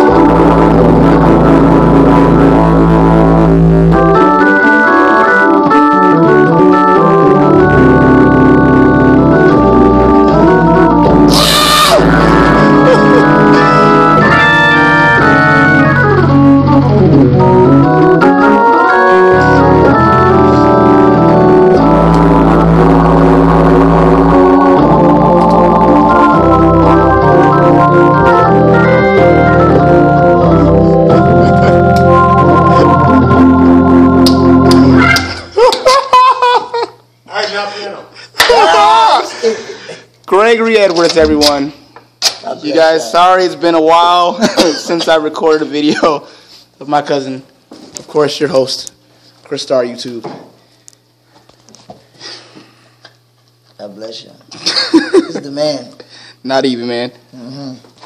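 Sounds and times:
organ playing chords: 0:00.0 - 0:37.2.

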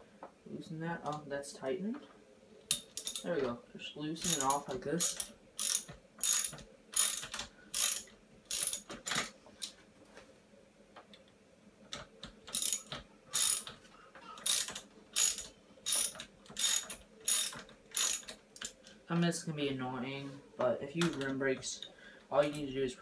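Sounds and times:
socket ratchet clicking: 0:02.7 - 0:03.3, 0:04.2 - 0:09.3, 0:11.9 - 0:13.8, 0:14.4 - 0:18.8.

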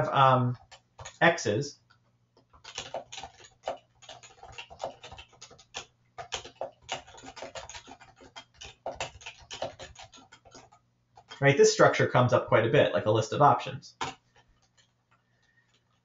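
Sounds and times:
typing on computer keyboard: 0:00.5 - 0:01.2, 0:01.8 - 0:11.4, 0:14.0 - 0:16.0.

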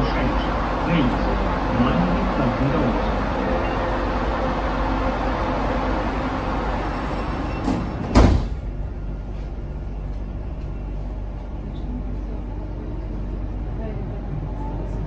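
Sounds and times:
sliding doors closing: 0:00.0 - 0:09.6
train background noise: 0:00.0 - 0:15.0
doors thudding shut: 0:07.6 - 0:08.7.

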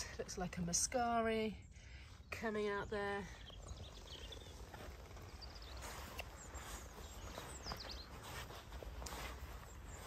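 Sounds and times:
birds chirping: 0:00.0 - 0:10.0
soft footsteps: 0:03.5 - 0:10.0.

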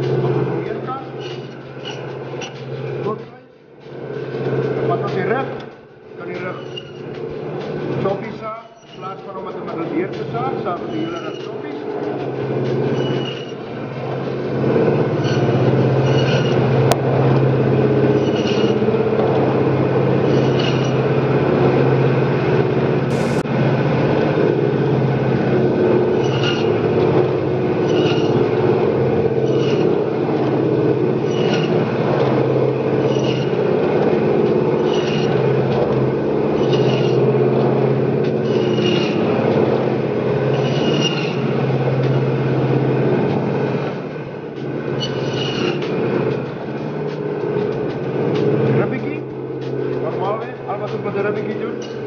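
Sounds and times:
bandsaw motor hum: 0:11.8 - 0:23.4, 0:24.6 - 0:52.0.

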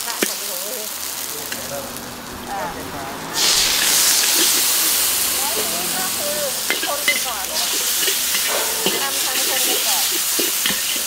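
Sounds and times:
noodles sizzling in a wok: 0:00.0 - 0:01.6, 0:03.4 - 0:11.0
metal spatula clinking on wok: 0:06.7 - 0:11.0.

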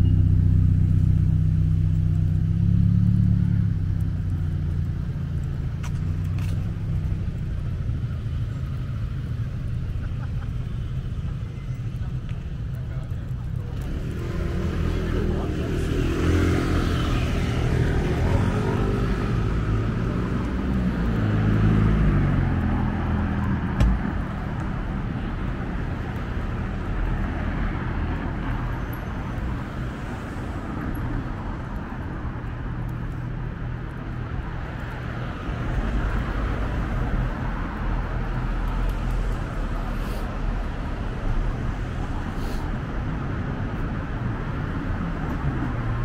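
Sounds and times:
low rumble of road traffic: 0:00.0 - 0:46.0
vehicle passing: 0:13.0 - 0:26.0
sharp knock: 0:23.8 - 0:24.1.

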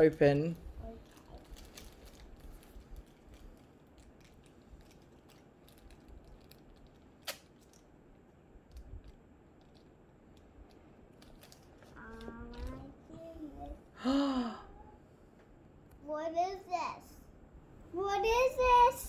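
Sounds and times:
plastic toy packet rustling open: 0:00.8 - 0:07.9, 0:08.7 - 0:12.8.

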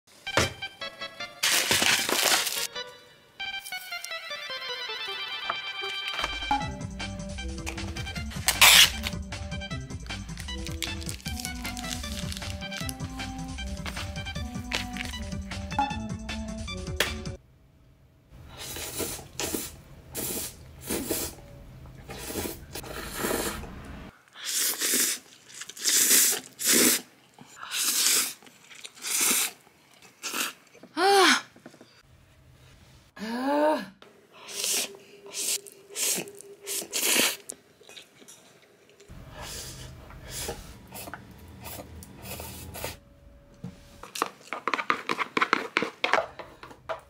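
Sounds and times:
slurping and chewing noodles: 0:22.1 - 0:23.8, 0:24.4 - 0:30.9, 0:34.5 - 0:43.0.

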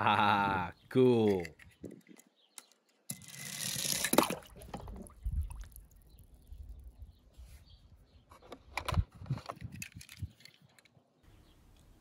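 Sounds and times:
toy car splashing into water: 0:03.3 - 0:05.0
water sloshing: 0:03.9 - 0:06.1.

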